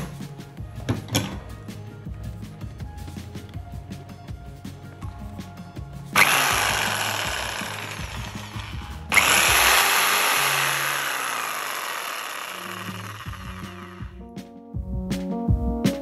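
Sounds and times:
jigsaw motor running: 6.2 - 14.2.

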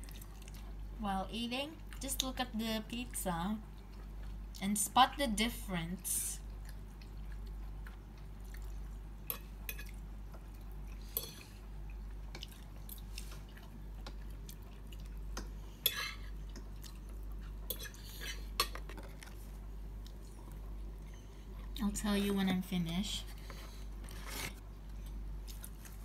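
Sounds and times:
person chewing: 0.0 - 0.8, 6.5 - 21.7
steady low hum: 0.0 - 26.0.

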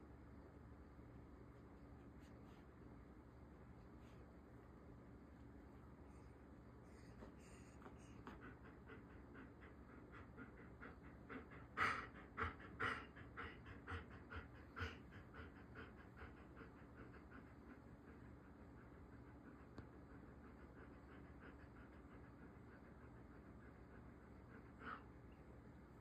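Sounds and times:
dog panting: 6.8 - 26.0.

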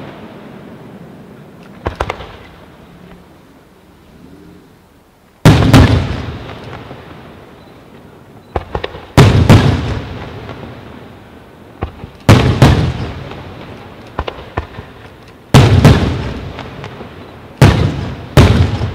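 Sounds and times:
firework rumble: 0.0 - 18.9
light firework pops: 1.6 - 2.6, 7.9 - 10.7, 11.8 - 18.9.

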